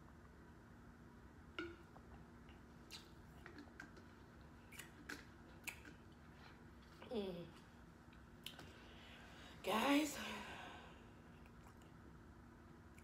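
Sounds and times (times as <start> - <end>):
mouth clicks: 2.8 - 4.0
person chewing: 2.8 - 6.8.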